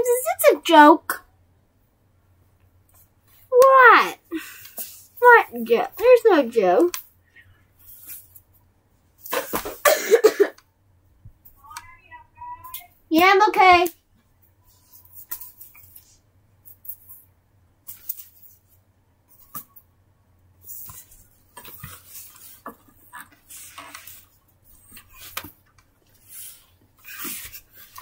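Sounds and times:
rustling of objects: 0:04.4 - 0:09.9, 0:13.6 - 0:19.9, 0:20.6 - 0:28.0.

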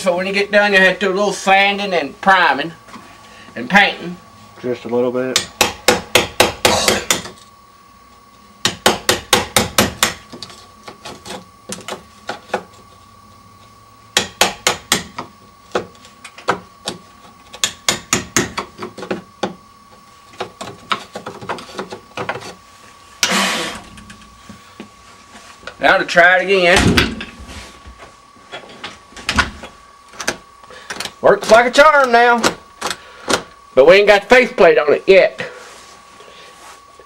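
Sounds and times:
hammer tapping chisel into wood: 0:14.2 - 0:15.9.

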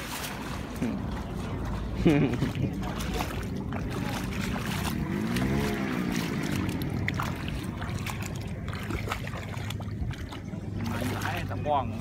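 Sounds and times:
wading through splashing water: 0:00.0 - 0:12.0.

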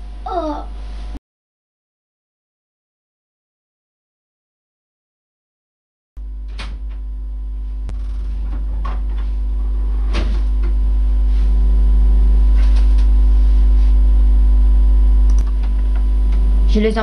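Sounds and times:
low electrical hum: 0:00.0 - 0:01.2, 0:06.2 - 0:17.0.

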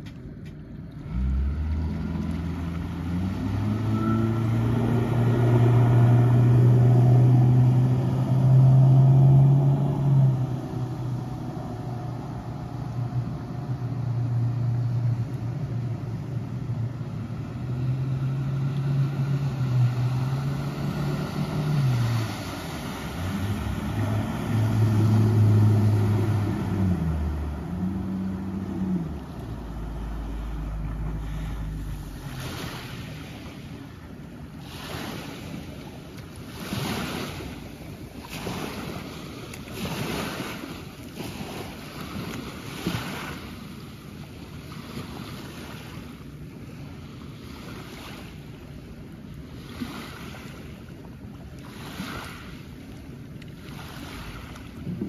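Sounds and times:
outboard motor hum: 0:00.0 - 0:55.0
small waves on gravel shore: 0:16.6 - 0:55.0.

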